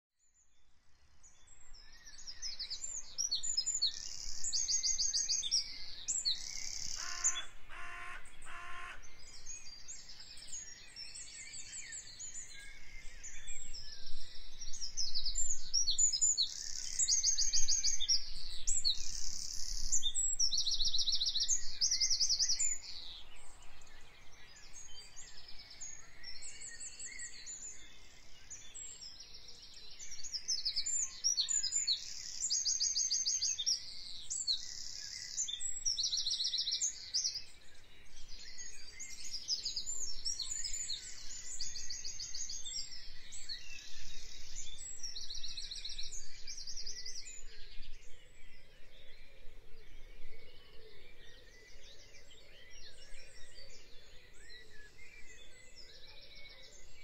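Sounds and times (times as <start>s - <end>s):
songbirds chirping and trilling: 0.2s - 57.0s
short low bird calls: 6.7s - 9.2s.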